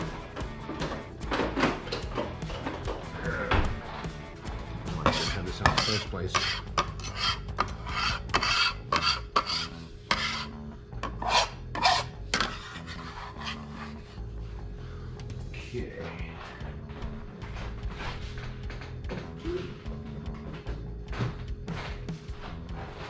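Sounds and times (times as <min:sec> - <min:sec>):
metal scraper on wooden board: 0:04.9 - 0:14.0.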